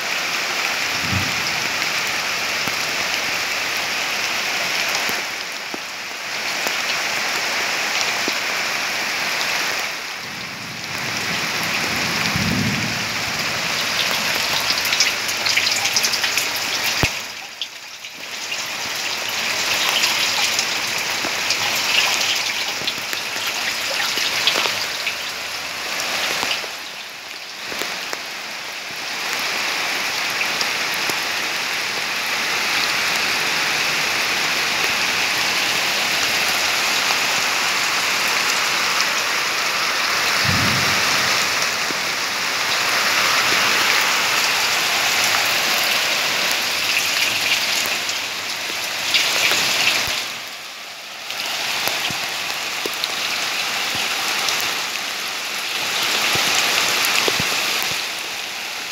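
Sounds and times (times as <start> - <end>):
rain falling: 0.0 - 58.9
water pouring into plastic barrel: 11.8 - 28.2, 40.4 - 50.4.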